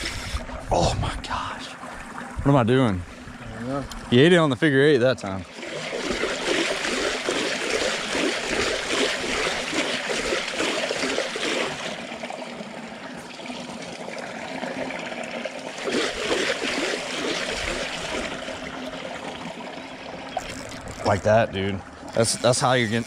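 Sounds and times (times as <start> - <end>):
fish thrashing and splashing: 5.5 - 12.2, 15.1 - 19.4, 20.1 - 22.3.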